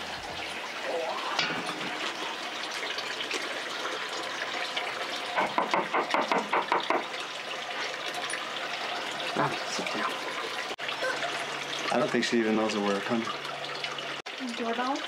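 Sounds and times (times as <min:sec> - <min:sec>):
knocks on a wooden door: 0:05.4 - 0:07.1.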